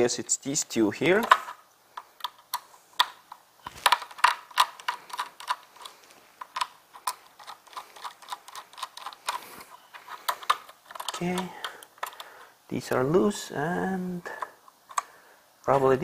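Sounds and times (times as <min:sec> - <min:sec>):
screwdriver clicking on screws: 0:03.7 - 0:12.3.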